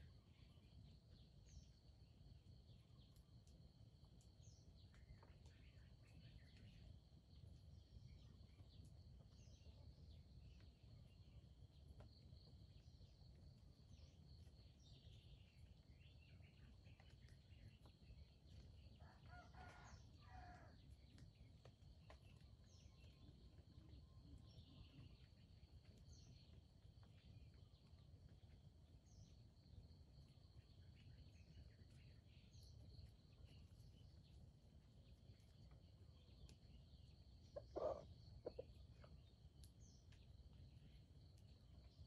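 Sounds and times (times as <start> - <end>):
rooster crowing faintly: 19.0 - 20.8.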